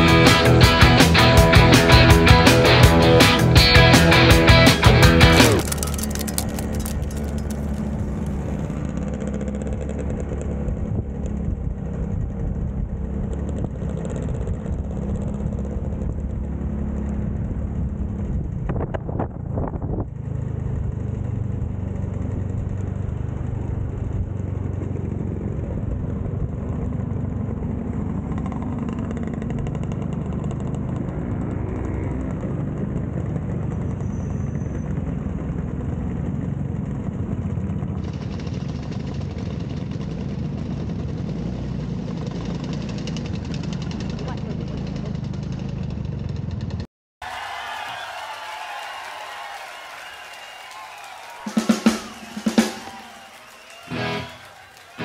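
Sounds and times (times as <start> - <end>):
scooters riding past: 5.4 - 18.3, 20.1 - 46.8.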